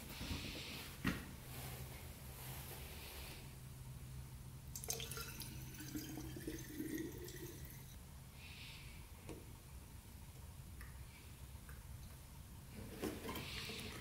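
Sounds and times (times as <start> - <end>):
liquid trickling through metal funnel: 4.8 - 7.9.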